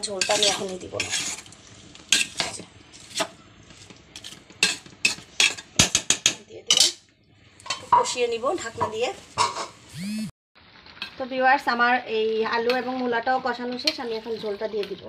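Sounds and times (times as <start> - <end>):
spoon scraping a metal pot: 0.0 - 3.4
food sauteing: 0.0 - 6.1.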